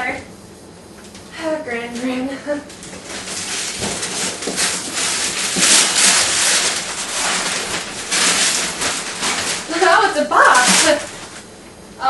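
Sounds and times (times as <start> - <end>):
wrapping paper ripping: 2.7 - 11.5.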